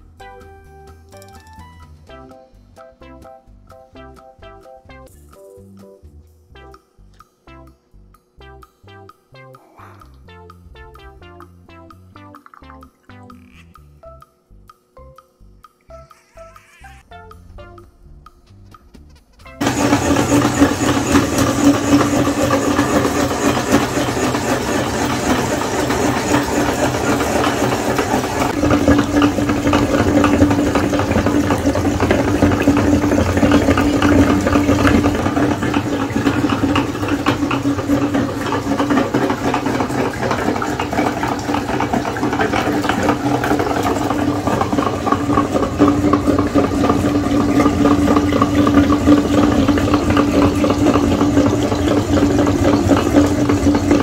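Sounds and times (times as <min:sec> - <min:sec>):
grinder rattling: 0:18.7 - 0:54.0
meat grinder humming: 0:19.6 - 0:54.0.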